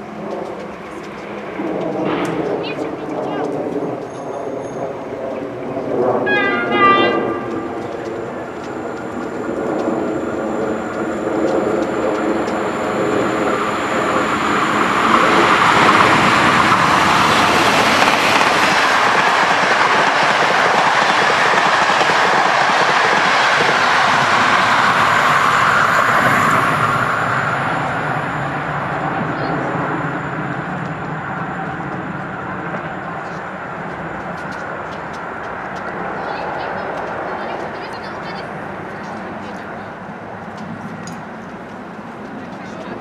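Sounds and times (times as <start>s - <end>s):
whine: 0.0s - 19.5s, 23.6s - 36.2s
train wheel and rail noise: 0.0s - 43.0s.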